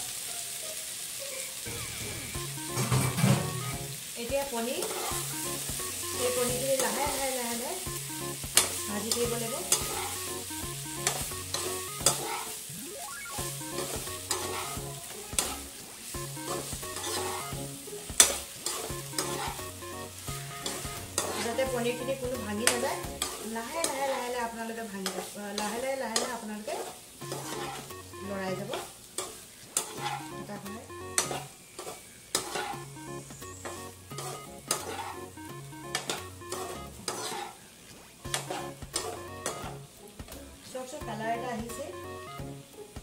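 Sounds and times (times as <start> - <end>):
food sizzling in oil: 0.0 - 43.0
spatula scraping a pan: 4.4 - 7.7, 8.5 - 12.7, 13.4 - 40.0
spatula clicking on pan: 8.4 - 10.4, 11.0 - 12.5, 13.7 - 15.6, 18.1 - 19.6, 20.6 - 24.1, 25.0 - 27.9, 28.6 - 30.4, 31.2 - 32.8, 33.6 - 35.2, 35.8 - 37.5, 38.3 - 39.7.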